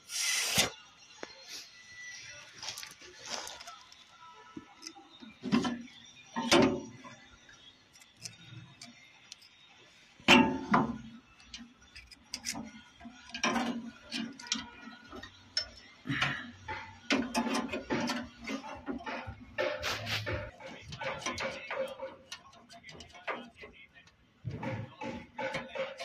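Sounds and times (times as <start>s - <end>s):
metal fittings clinking: 10.3s - 16.0s.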